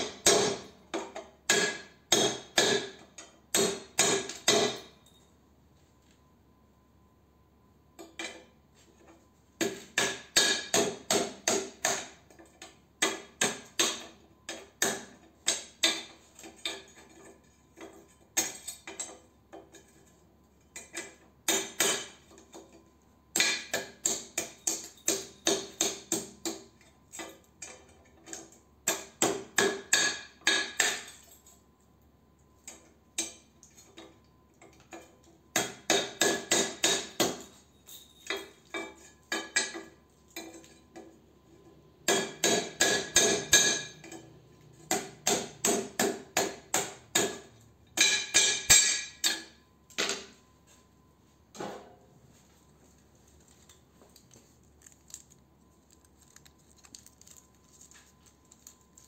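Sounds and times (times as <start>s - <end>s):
hammer tapping metal: 0.0s - 4.9s, 9.6s - 17.1s, 20.8s - 22.3s, 23.3s - 31.3s, 35.0s - 37.6s, 42.0s - 50.4s.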